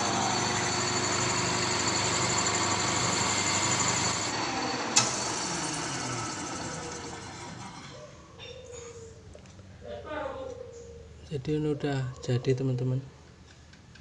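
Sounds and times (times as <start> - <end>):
metal lathe running: 0.0 - 8.0.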